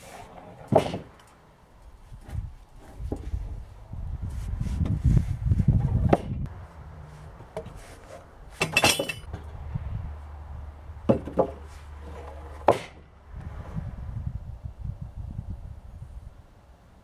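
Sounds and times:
wooden boards knocking: 0.6 - 1.1, 11.1 - 13.0
low rumble: 9.3 - 11.1, 13.1 - 16.4.

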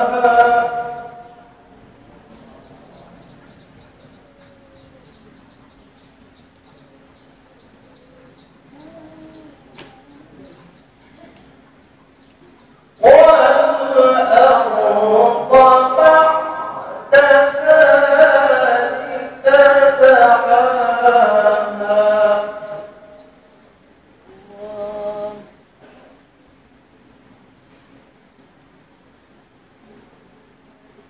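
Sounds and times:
amplified melodic recitation: 0.0 - 1.7, 13.0 - 23.4
faint hum: 0.0 - 31.0
faint high chirps: 2.3 - 13.0.

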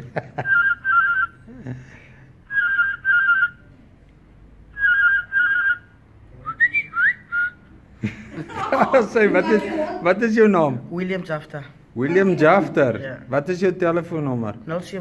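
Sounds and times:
man whistling animal call: 0.4 - 1.5, 2.5 - 3.7, 4.7 - 7.7.

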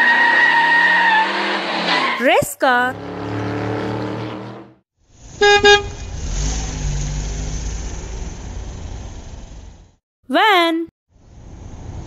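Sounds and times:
van engine rumbling: 5.1 - 10.0
horn toots: 5.3 - 6.2.

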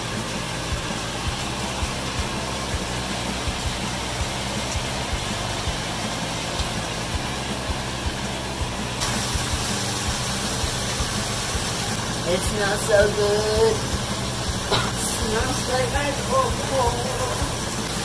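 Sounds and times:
meat sizzling in a frying pan: 0.0 - 18.0.

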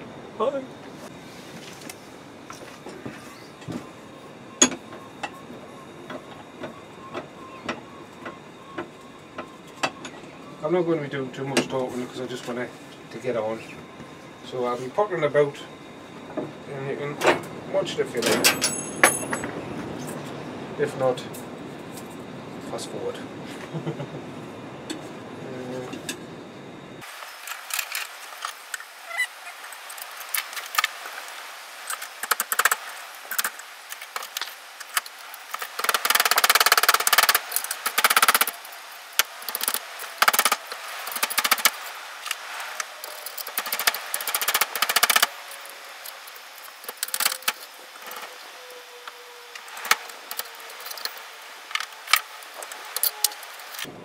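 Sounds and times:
metal strapping clinking and rattling: 18.2 - 19.5.

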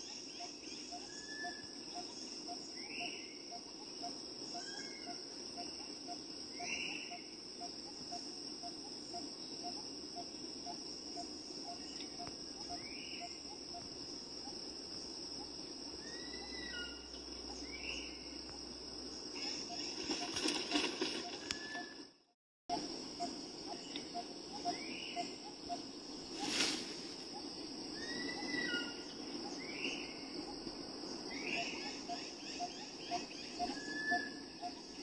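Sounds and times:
soft insect ticking: 0.0 - 16.2, 17.0 - 22.1
insects droning: 0.0 - 35.0
short sweeping insect calls: 0.0 - 35.0.

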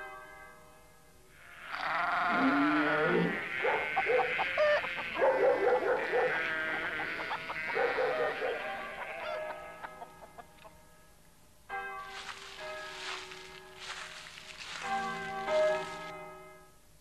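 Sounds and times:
overlapping animal calls: 1.6 - 10.5.

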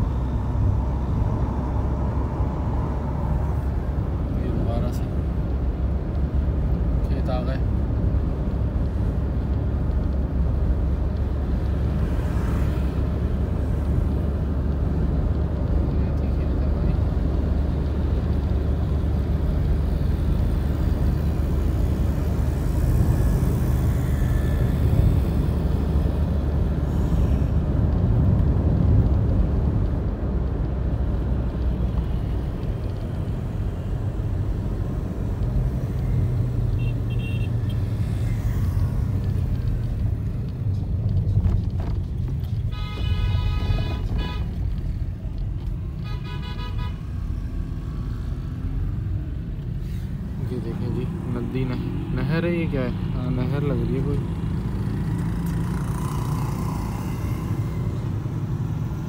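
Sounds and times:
vehicle road and engine rumble: 0.0 - 59.0
vehicle horn: 36.8 - 37.8, 42.7 - 44.6, 46.0 - 47.1.

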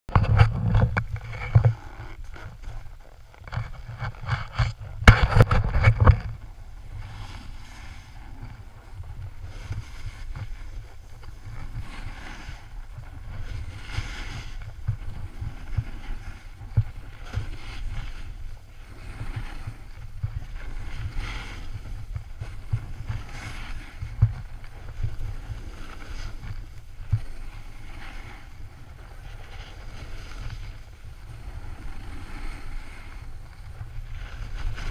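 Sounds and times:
bumps and rustles: 0.1 - 6.5
wind buffeting microphone: 0.1 - 34.9
edges scraping snow: 0.5 - 34.9.

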